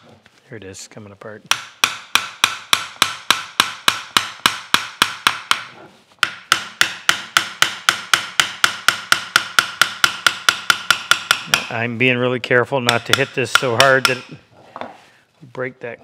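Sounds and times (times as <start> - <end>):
hammer tapping on metal: 1.5 - 11.8, 12.8 - 14.4.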